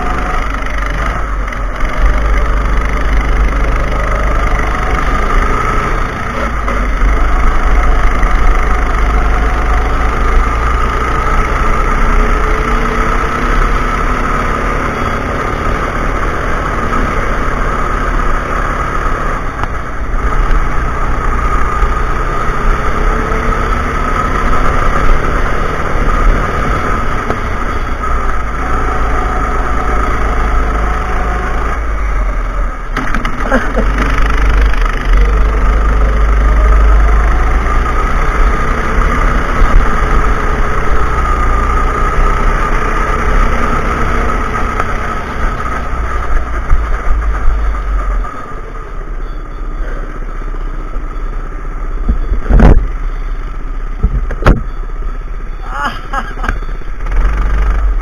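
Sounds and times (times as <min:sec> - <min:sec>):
go-kart engine revving: 0:00.0 - 0:58.0
wind rumble on microphone: 0:52.0 - 0:53.0, 0:54.0 - 0:54.7.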